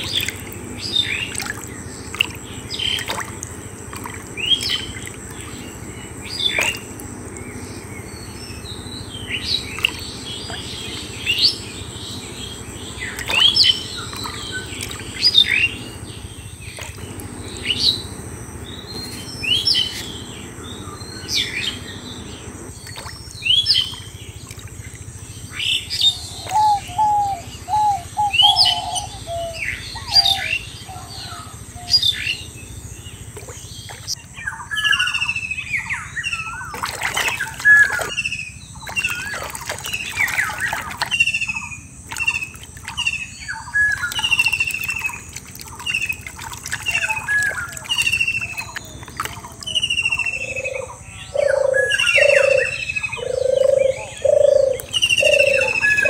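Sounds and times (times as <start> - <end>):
birds chirping: 0.0 - 56.0
lower bird call: 25.4 - 32.5, 45.9 - 56.0.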